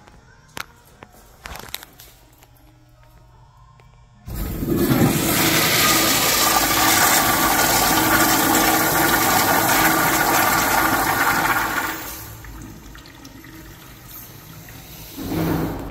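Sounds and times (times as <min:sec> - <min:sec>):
toilet flushing: 0:04.3 - 0:15.9.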